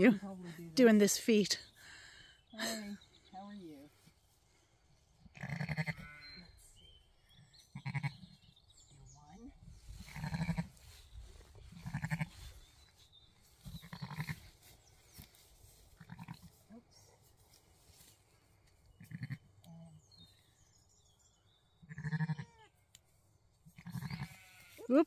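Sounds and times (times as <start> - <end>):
sheep bleating: 5.4 - 6.6, 7.7 - 8.2, 11.8 - 12.4, 16.0 - 16.5, 19.0 - 19.4, 21.9 - 22.7, 23.8 - 24.9.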